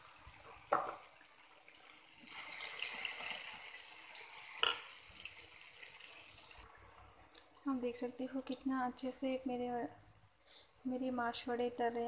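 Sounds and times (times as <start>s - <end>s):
food deep-frying in hot oil: 0.0s - 7.0s.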